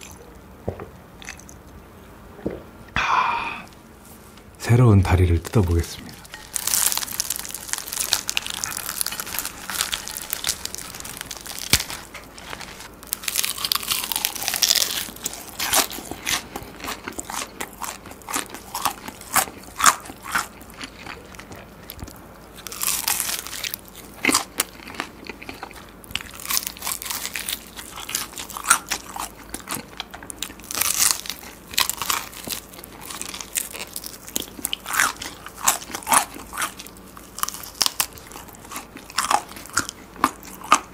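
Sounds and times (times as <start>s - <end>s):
crunchy chewing: 5.4s - 40.9s
fried chicken torn by hand: 6.3s - 16.4s.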